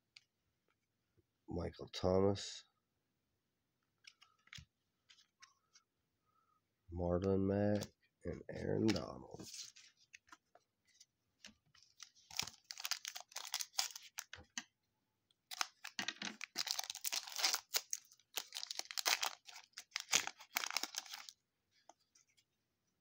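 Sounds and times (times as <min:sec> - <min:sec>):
wrapper crinkling and tearing: 0:12.0 - 0:14.4, 0:15.5 - 0:21.3.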